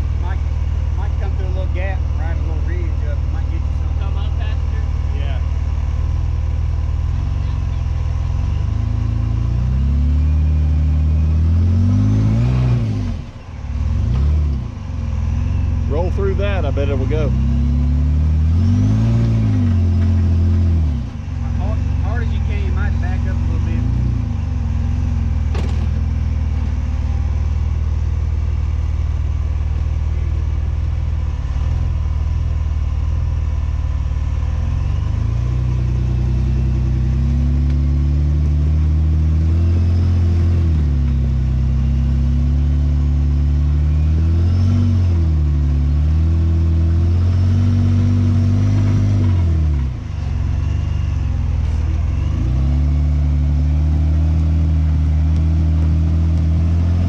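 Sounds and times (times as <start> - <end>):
engine revving under load: 0.0 - 57.0
sharp knock: 25.5 - 26.0.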